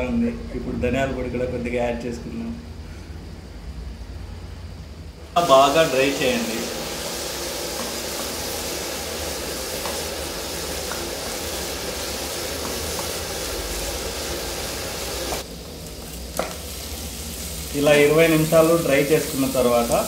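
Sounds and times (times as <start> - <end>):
prawns sizzling in a pan: 5.4 - 20.0
wooden spatula scraping: 7.0 - 16.5.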